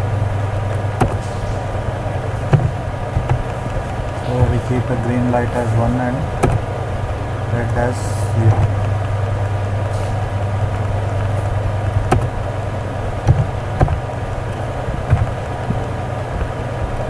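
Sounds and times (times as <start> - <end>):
low electrical hum with hiss: 0.0 - 17.0
keyboard keys clicking: 2.4 - 6.7, 10.8 - 17.0.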